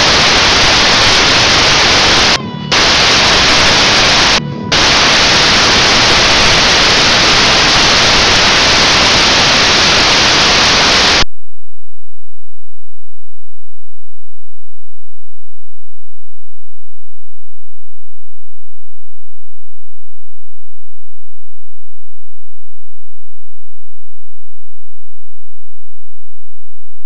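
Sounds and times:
loud static hiss: 0:00.0 - 0:11.3.

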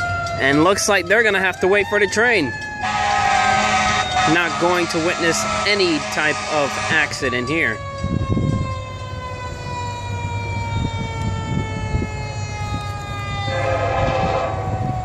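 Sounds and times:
siren falling in pitch: 0:00.0 - 0:15.0
horn: 0:02.8 - 0:07.1, 0:13.5 - 0:14.6.

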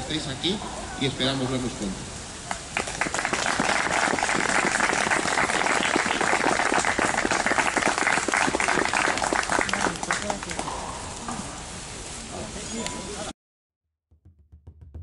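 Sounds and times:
crowd applauding: 0:02.4 - 0:10.7.

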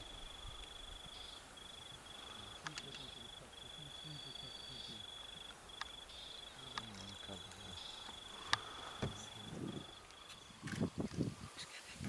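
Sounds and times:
insect trilling: 0:00.0 - 0:12.0
sharp clicks: 0:02.5 - 0:03.2, 0:05.5 - 0:06.0, 0:06.7 - 0:08.7.

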